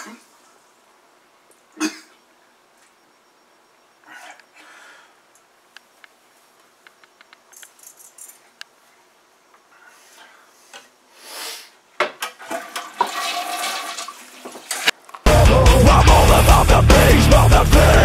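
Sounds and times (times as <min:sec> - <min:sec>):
short hiss: 0:11.1 - 0:11.8
toilet flushing: 0:12.3 - 0:14.9.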